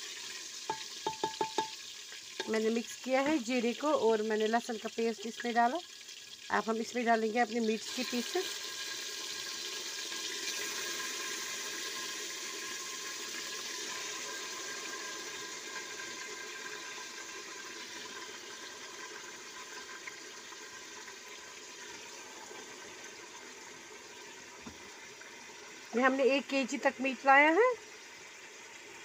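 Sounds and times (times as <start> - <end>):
meat sizzling in hot oil: 0.0 - 29.0.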